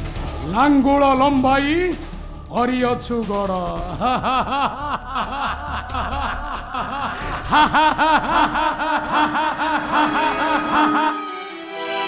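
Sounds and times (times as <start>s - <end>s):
man laughing theatrically: 3.8s - 11.3s
sustained musical note: 9.7s - 12.0s.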